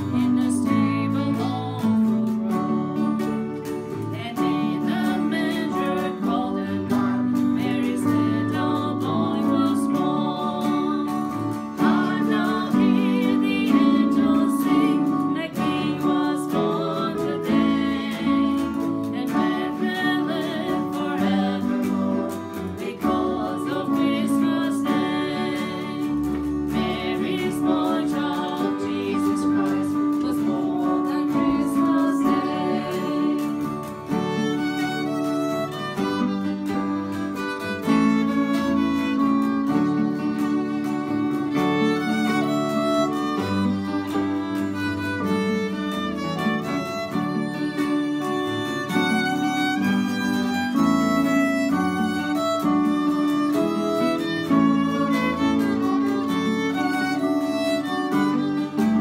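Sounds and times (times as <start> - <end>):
woman singing: 0.0 - 36.3
acoustic guitars strumming: 0.0 - 59.0
electric keyboard: 0.0 - 59.0
violin bowing: 0.0 - 59.0.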